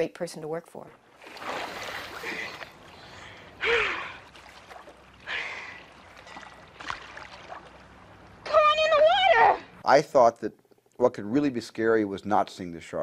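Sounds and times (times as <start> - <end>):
water splashing: 0.9 - 9.8
woman breathing: 2.1 - 4.3, 5.2 - 6.6.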